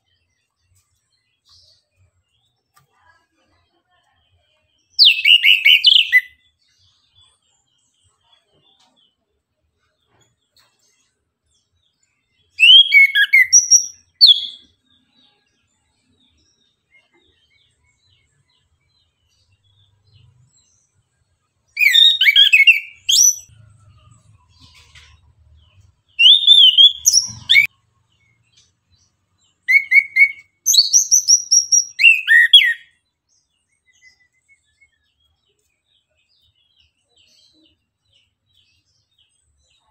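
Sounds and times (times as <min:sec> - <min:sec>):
thrush singing whistled notes: 0:12.5 - 0:14.7, 0:21.8 - 0:23.5, 0:26.2 - 0:27.7, 0:29.6 - 0:33.0.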